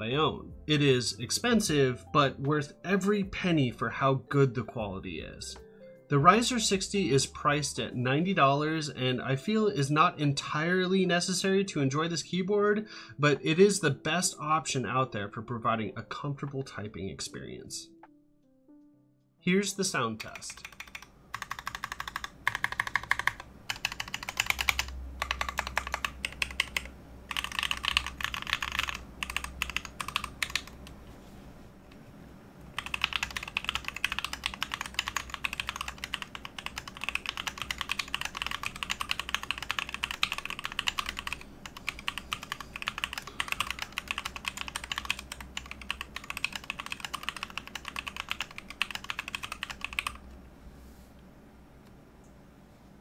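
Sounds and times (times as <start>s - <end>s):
mechanical keyboard typing: 20.2s - 31.0s, 32.8s - 50.2s.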